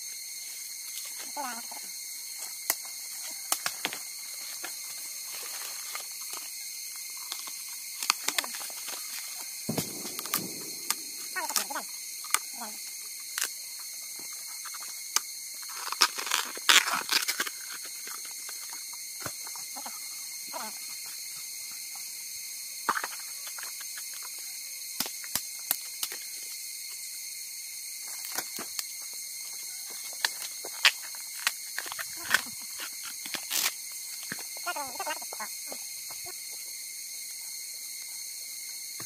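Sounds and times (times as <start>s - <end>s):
bamboo sheaths tearing and cracking: 7.2s - 9.2s, 14.7s - 19.3s, 30.2s - 34.5s.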